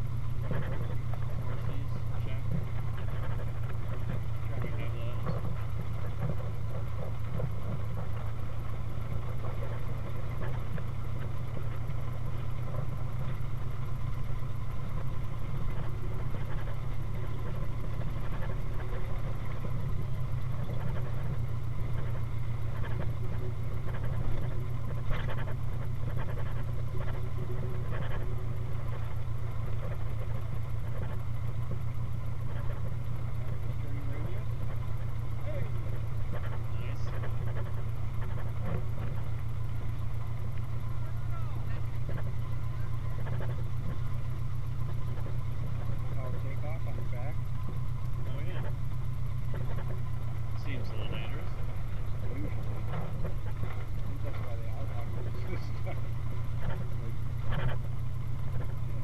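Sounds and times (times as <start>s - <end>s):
car engine running: 0.0s - 59.0s.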